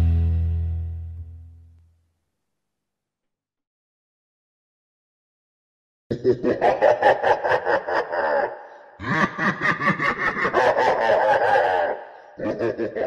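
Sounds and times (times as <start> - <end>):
loud laughter: 6.1 - 13.0.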